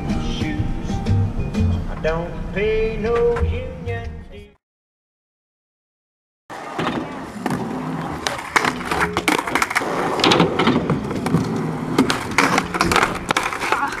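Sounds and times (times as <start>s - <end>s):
skateboard clacks: 6.5s - 14.0s
skateboards rolling on concrete: 6.5s - 14.0s.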